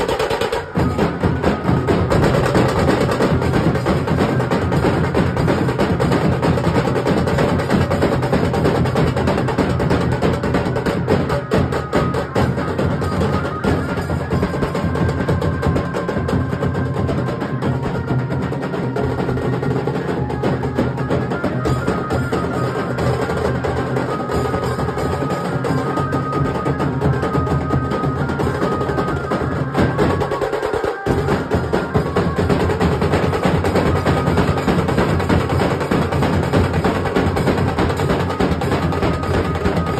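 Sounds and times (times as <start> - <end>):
barrel drums beaten with sticks: 0.0 - 25.6, 29.5 - 39.9.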